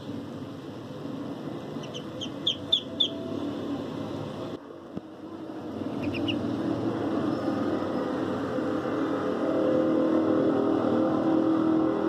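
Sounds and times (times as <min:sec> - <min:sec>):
duckling peeping: 0:01.8 - 0:03.3, 0:05.8 - 0:06.5.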